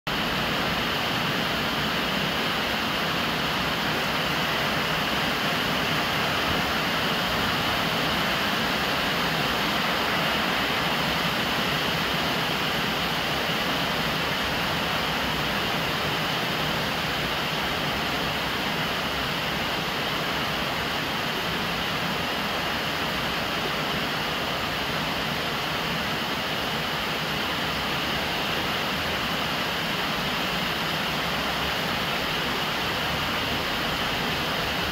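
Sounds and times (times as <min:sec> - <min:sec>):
steady rain: 0:00.1 - 0:34.9.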